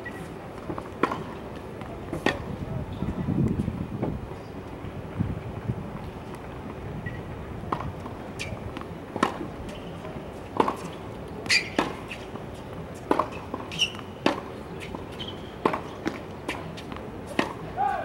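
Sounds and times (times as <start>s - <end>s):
tennis balls hit by rackets: 0.6s - 2.6s, 7.0s - 12.4s, 13.0s - 18.0s.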